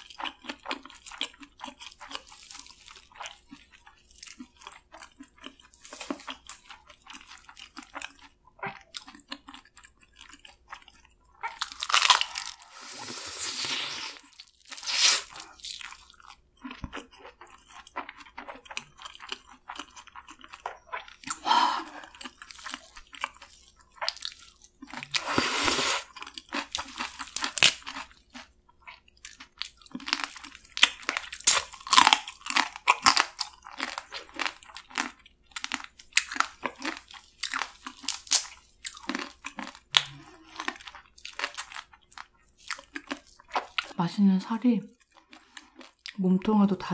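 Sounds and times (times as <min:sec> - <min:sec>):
wet chewing and crunching: 0:00.0 - 0:44.0, 0:44.9 - 0:46.8
sucking meat from crab: 0:11.4 - 0:15.6, 0:24.9 - 0:26.2.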